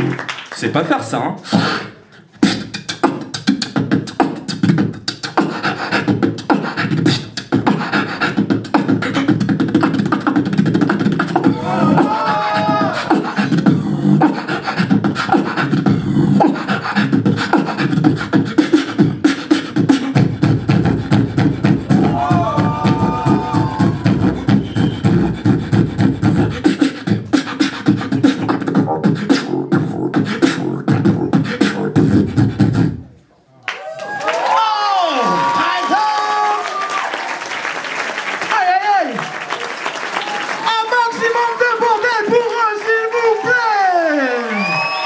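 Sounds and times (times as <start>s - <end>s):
beatboxing through a microphone: 0.0s - 33.4s
wavering vocal tone: 2.5s - 33.1s.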